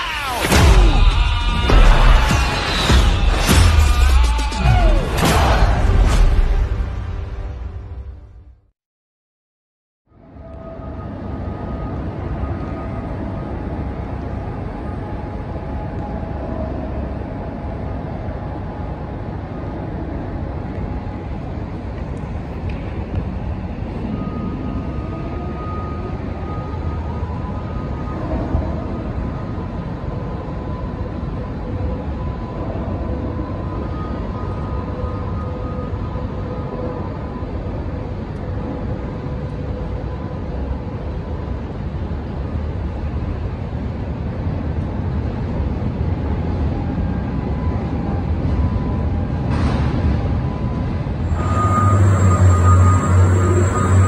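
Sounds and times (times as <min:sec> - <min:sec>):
faint hum: 0:10.1 - 0:54.0
heavy machinery rumble: 0:11.1 - 0:54.0.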